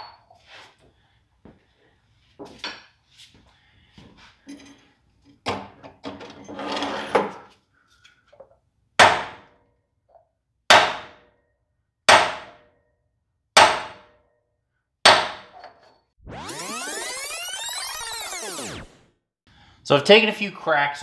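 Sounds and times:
hammer striking metal pipe: 12.1s - 12.6s, 13.6s - 14.2s, 15.1s - 15.7s.

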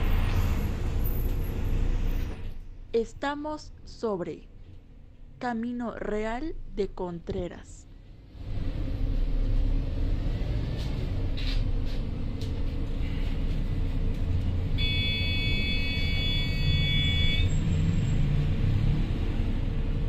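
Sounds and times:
bus engine and road rumble: 0.0s - 20.0s
high buzzer tone: 14.8s - 17.6s.

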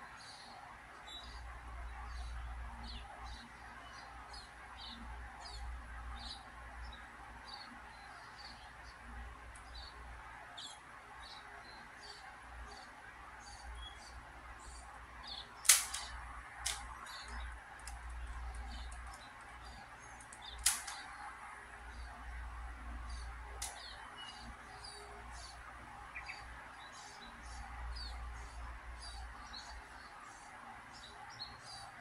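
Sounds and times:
plastic puzzle cube clicks: 15.6s - 19.5s, 20.2s - 21.0s.

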